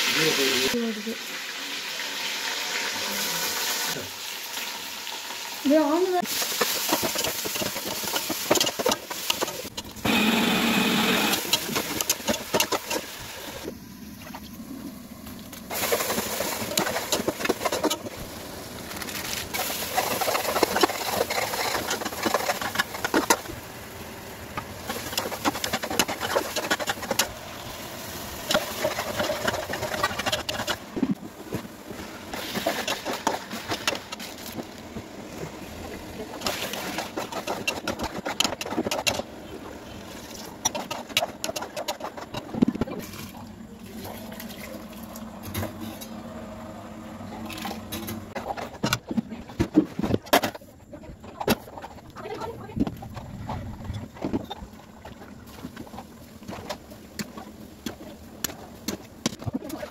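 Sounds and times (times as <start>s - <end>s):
food sizzling in a pot: 0.0s - 14.0s.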